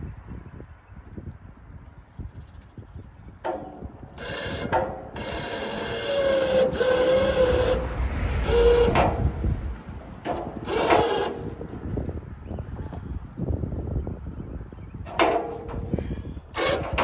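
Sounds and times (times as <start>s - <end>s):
metal squealing: 3.5s - 11.7s
wire cart scraping against bridge: 3.5s - 11.9s, 15.1s - 17.0s.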